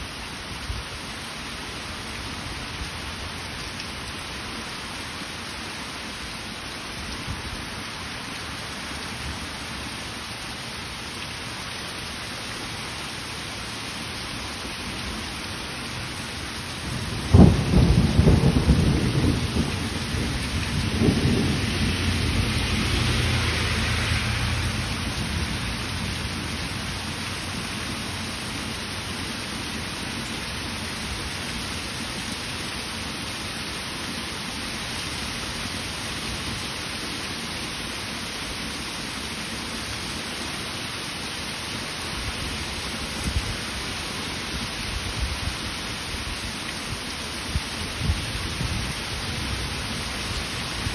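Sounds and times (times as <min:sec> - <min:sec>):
heavy rain pouring: 0:00.0 - 0:50.9
thunder crack and rumble: 0:16.9 - 0:23.6.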